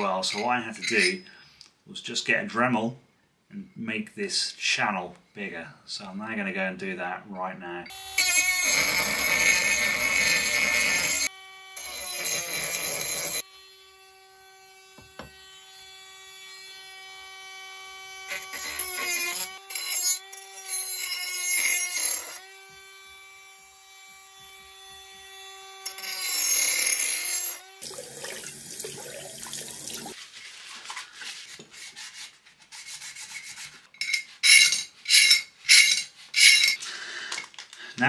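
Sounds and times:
rotary tool grinding metal: 0.0s - 1.3s, 7.9s - 27.9s, 32.7s - 36.8s
running tap water: 27.8s - 30.2s.

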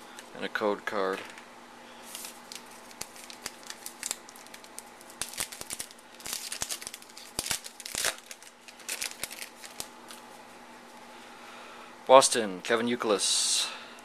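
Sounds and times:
foil wrapper tearing and crinkling: 2.0s - 10.2s.

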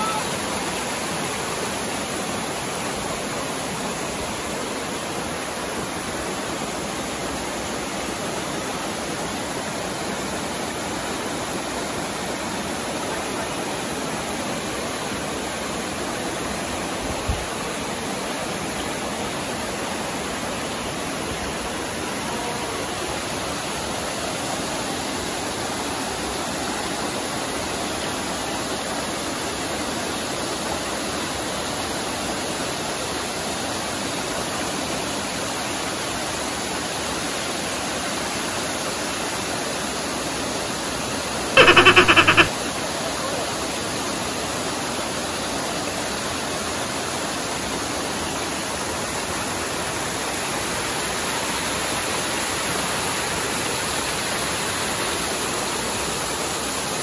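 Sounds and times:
river water rushing over rocks: 0.0s - 41.3s
loud pulsing fluttering tone: 41.6s - 42.5s.

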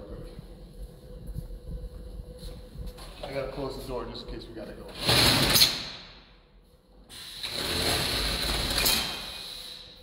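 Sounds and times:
roll-up metal door rattling shut: 4.9s - 5.9s, 7.6s - 9.3s.

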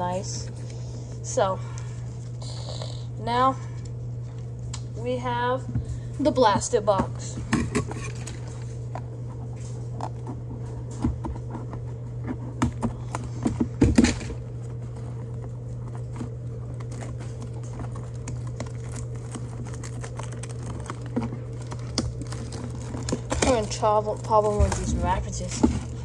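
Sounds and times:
steady low hum: 0.0s - 26.0s
picking at plastic wrap: 15.1s - 26.0s.

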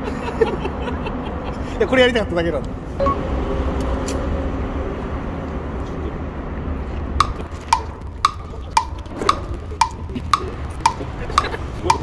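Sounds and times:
clock ticking: 7.2s - 12.0s.

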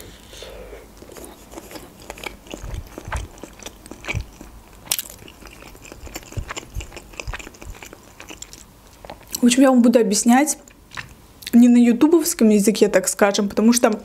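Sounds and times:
person chewing bread: 0.8s - 9.4s
crust crunching: 1.1s - 9.3s.

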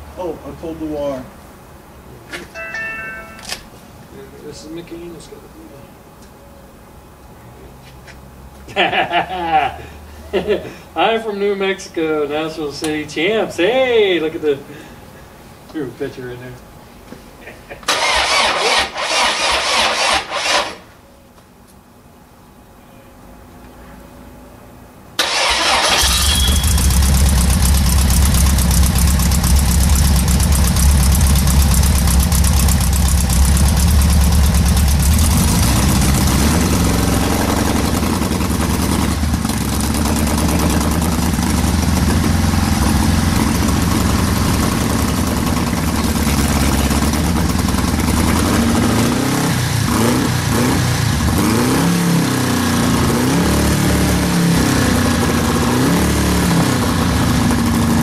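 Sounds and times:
engine starting and revving: 17.9s - 20.8s, 25.2s - 29.7s, 33.5s - 58.0s.

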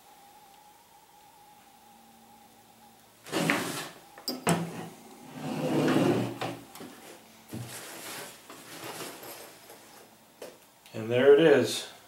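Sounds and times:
plastic bags rustling: 6.6s - 10.1s.

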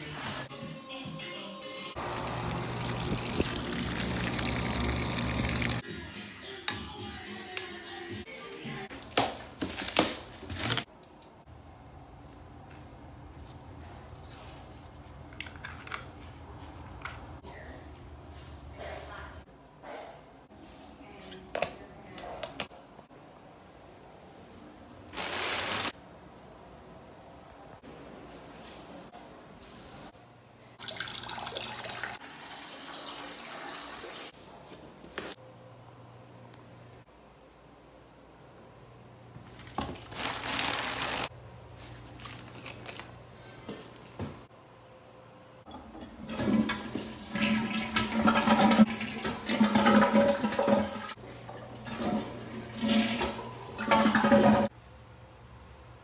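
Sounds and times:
toilet flushing: 2.0s - 5.8s, 30.8s - 34.4s, 45.8s - 54.7s.

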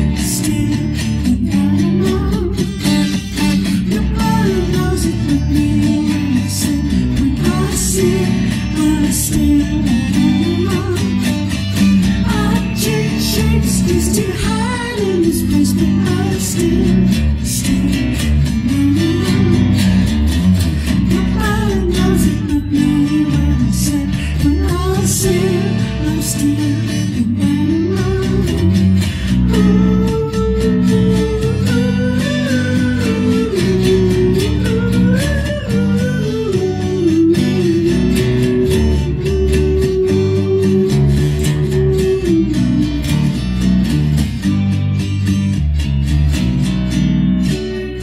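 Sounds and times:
man singing: 0.0s - 11.3s, 12.2s - 19.8s
low bass line: 0.0s - 48.0s
strummed acoustic guitar: 0.0s - 48.0s.

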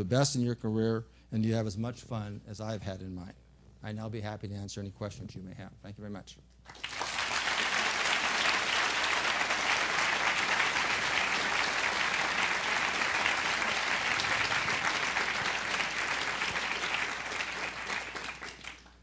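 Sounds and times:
audience applauding: 6.7s - 19.0s.

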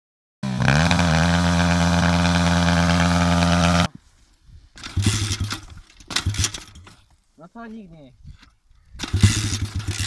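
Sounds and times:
motorbike engine at high revs: 0.4s - 3.9s, 9.1s - 10.0s.

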